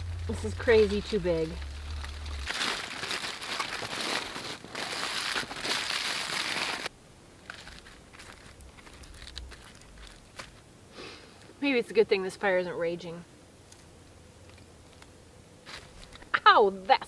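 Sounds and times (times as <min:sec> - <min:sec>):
aluminium foil crinkling: 0:00.0 - 0:10.6.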